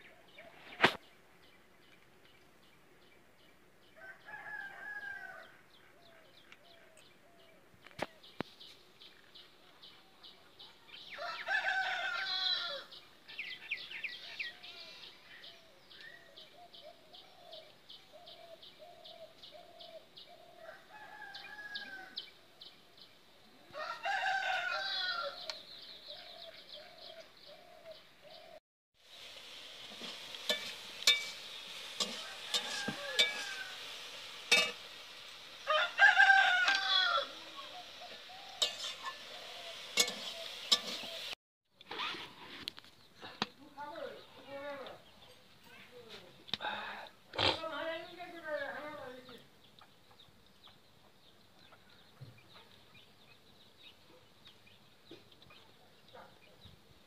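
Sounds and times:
rooster crowing: 4.0 - 5.6, 11.1 - 12.9, 20.6 - 22.2, 23.7 - 25.5, 32.0 - 33.9, 35.6 - 41.1.

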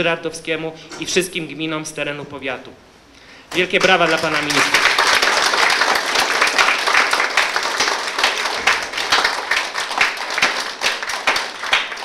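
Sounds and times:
people applauding: 3.5 - 12.0.

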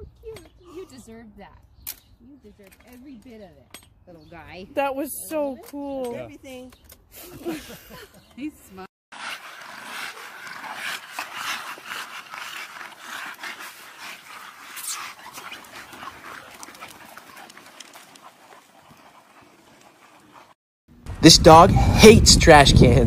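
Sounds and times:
dogs panting: 9.4 - 20.6
clicks and rustles of movement: 14.1 - 20.5.

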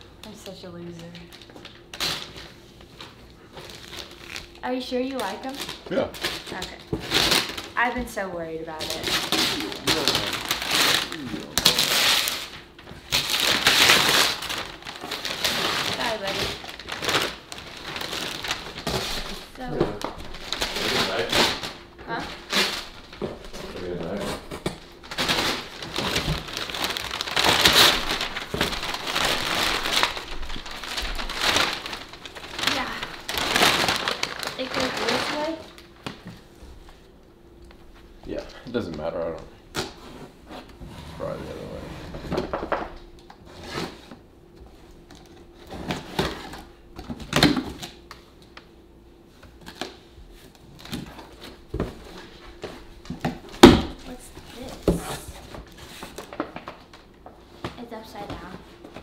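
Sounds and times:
paper rustling and crinkling: 8.7 - 37.0, 49.4 - 59.0.

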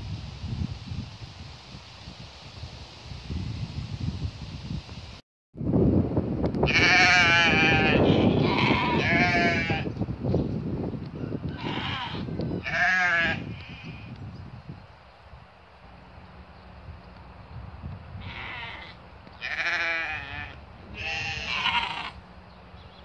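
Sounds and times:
sheep bleating: 6.7 - 9.9, 11.6 - 14.0, 18.2 - 22.2.

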